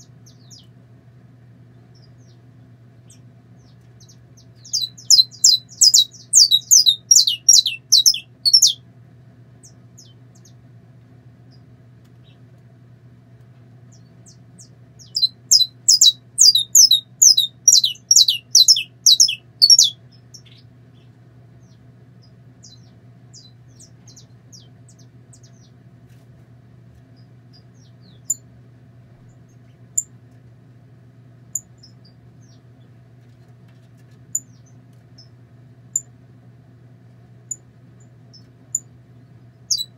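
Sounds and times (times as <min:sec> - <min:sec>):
finch singing high notes: 0:04.7 - 0:08.8, 0:15.1 - 0:20.0.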